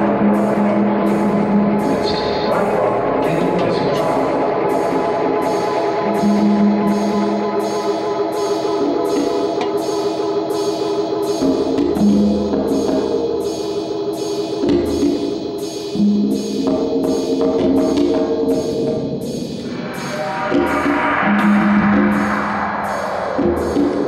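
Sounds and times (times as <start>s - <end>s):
long held chords: 0.0s - 14.7s
steady beat: 0.0s - 24.0s.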